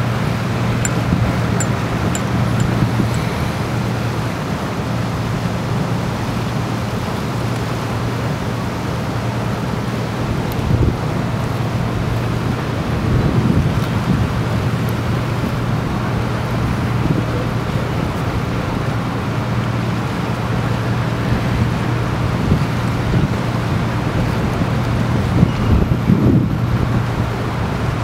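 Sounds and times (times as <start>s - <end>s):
motorboat engine droning: 0.0s - 28.0s
water rushing along bow: 0.0s - 28.0s
wind noise on microphone: 10.4s - 18.7s, 21.1s - 28.0s.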